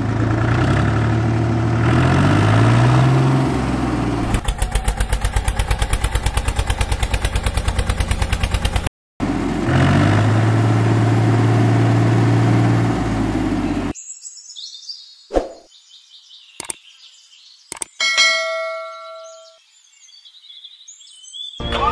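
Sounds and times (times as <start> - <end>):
tractor engine chugging: 3.4 - 9.6.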